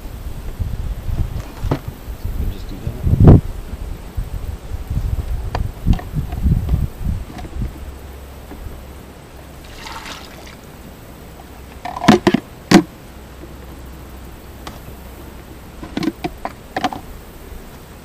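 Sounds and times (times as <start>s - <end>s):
liquid trickling: 9.6s - 10.7s
hard plastic clunks: 11.8s - 12.9s, 15.8s - 17.0s.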